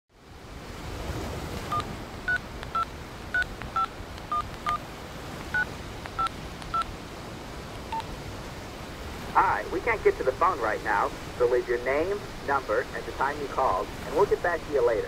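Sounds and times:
telephone keypad beeps: 1.7 - 4.8, 5.5 - 6.9, 7.9 - 8.1.

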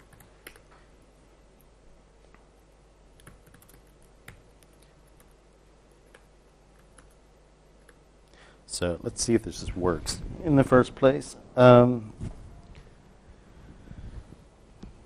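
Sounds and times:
typing on laptop keyboard: 0.0 - 0.7, 3.2 - 7.2, 7.8 - 8.0
low steady hum: 0.0 - 15.0.

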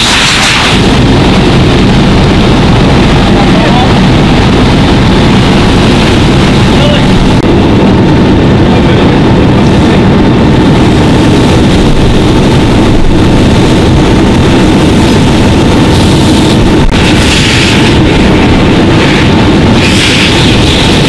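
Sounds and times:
hose stream: 0.0 - 1.4, 15.9 - 21.0
faint steady whine: 0.0 - 21.0
fire engine running: 0.0 - 21.0
fire rumbling: 0.0 - 21.0.

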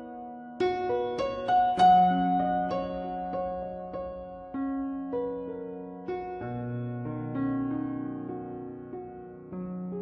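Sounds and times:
gentle piano music: 0.0 - 10.0.

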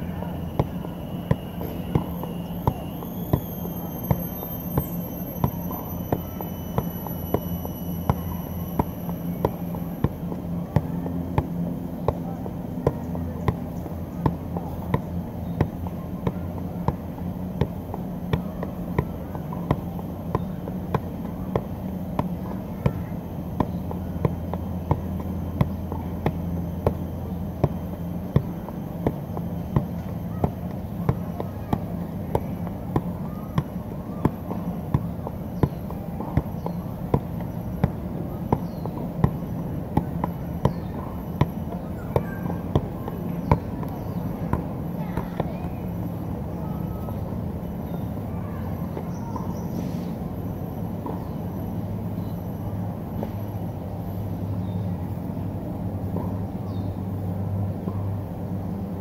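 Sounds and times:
soccer ball kicks: 0.0 - 47.1.

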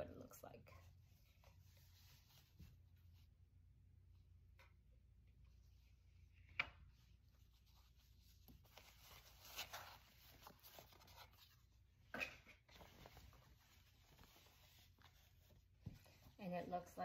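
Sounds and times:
fabric and paper rustling: 0.2 - 3.6, 6.9 - 17.0.

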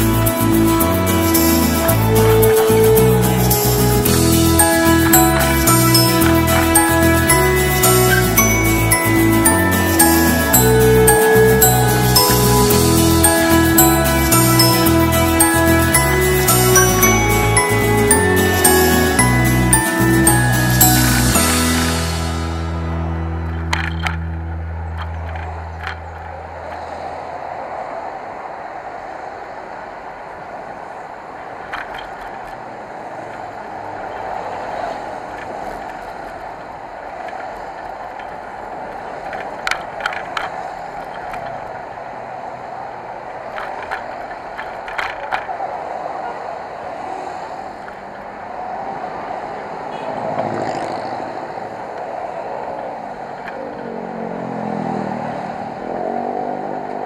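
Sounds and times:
wind and road rush: 0.0 - 18.5, 21.0 - 57.0.

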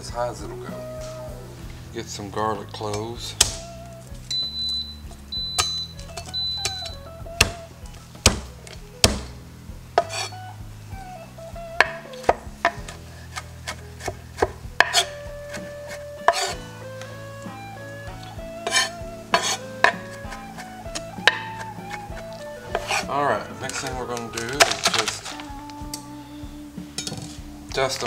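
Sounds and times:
background music with held notes: 0.0 - 28.0
knife chopping on wooden board: 8.2 - 9.4, 10.0 - 10.3, 11.8 - 16.6, 18.6 - 23.1.

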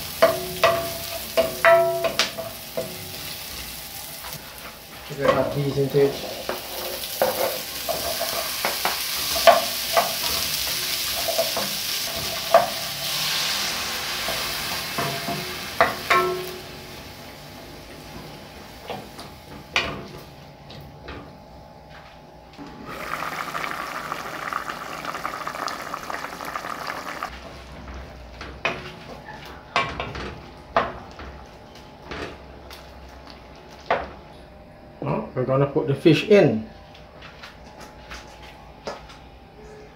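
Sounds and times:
vegetables sizzling in butter: 0.0 - 17.5, 22.8 - 27.3.

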